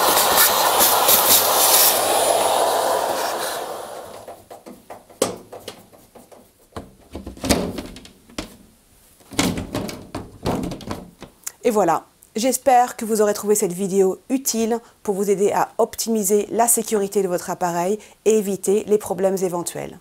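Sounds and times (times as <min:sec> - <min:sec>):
vacuum cleaner running: 0:00.0 - 0:04.4
knocks of dryer cover: 0:04.3 - 0:08.6, 0:09.2 - 0:11.3.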